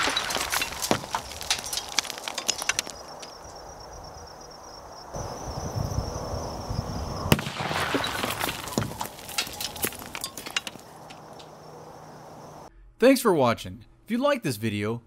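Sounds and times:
debris clicking and crackling: 0.0s - 3.7s, 7.3s - 11.6s
high insect buzz: 2.9s - 7.4s
firecracker bang: 7.3s - 9.0s.

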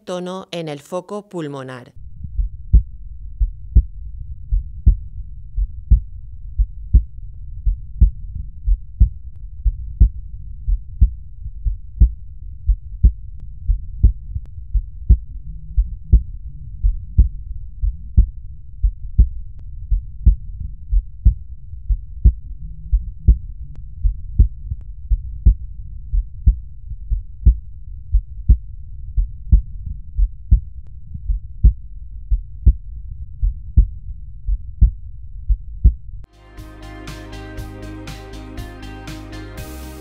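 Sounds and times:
steady low hum: 2.0s - 40.0s
heartbeat lub-dub: 2.2s - 24.7s, 34.5s - 40.0s.

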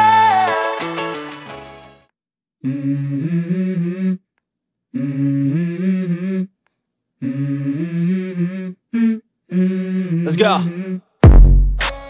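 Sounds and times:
hummed vocal phrase: 7.2s - 11.1s.

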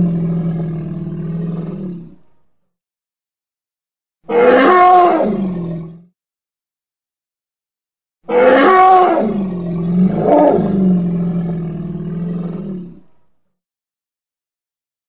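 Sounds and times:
elephant roar: 0.0s - 2.2s, 4.3s - 6.1s, 8.3s - 13.1s.

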